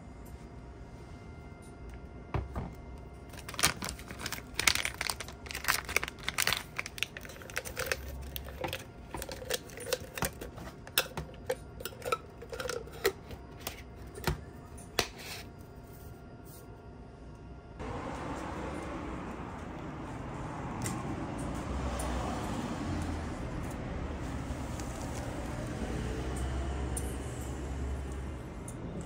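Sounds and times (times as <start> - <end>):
paper bag crinkling: 3.2 - 10.9.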